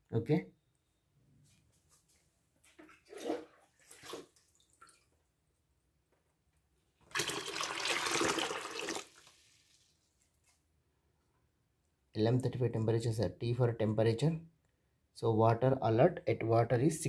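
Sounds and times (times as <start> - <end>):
water pouring into plastic tub: 2.7 - 5.1, 7.0 - 10.2.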